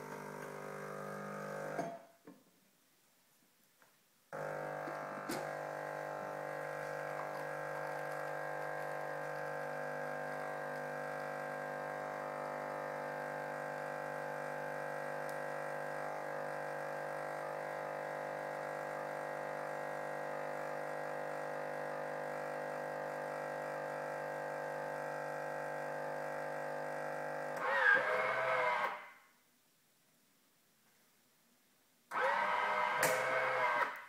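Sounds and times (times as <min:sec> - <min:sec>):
coffee machine pump humming: 0:00.0 - 0:02.0, 0:04.4 - 0:28.8.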